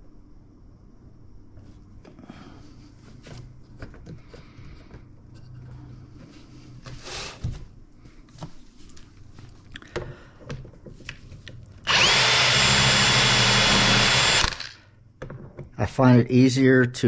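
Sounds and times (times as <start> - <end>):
drill boring into wood: 11.8 - 14.8.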